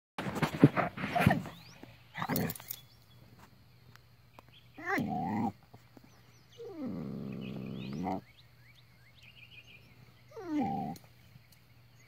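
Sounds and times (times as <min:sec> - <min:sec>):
dog whining growl: 0:04.8 - 0:05.6, 0:06.6 - 0:08.2, 0:10.3 - 0:11.1.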